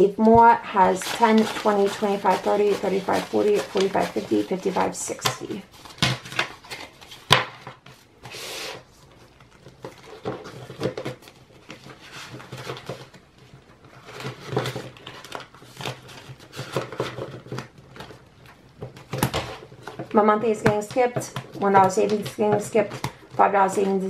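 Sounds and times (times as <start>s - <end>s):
plastic crinkling: 0.0s - 8.1s
banknotes rustling: 0.0s - 24.0s.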